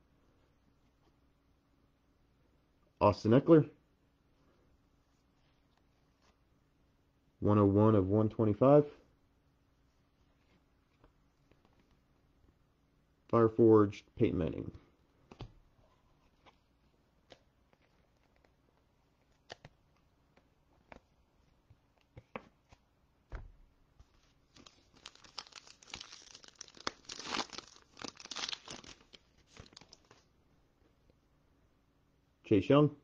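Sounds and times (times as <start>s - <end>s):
foil wrapper tearing and crinkling: 24.5s - 30.1s.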